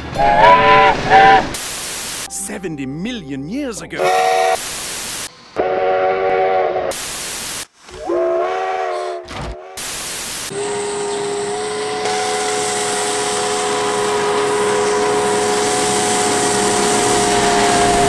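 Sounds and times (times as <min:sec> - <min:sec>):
steam locomotive chime whistle: 0:00.0 - 0:01.5, 0:02.3 - 0:04.6, 0:08.0 - 0:18.0
hiss of steam: 0:01.1 - 0:02.3, 0:04.5 - 0:05.4, 0:06.9 - 0:08.0, 0:09.8 - 0:10.6, 0:12.1 - 0:18.0.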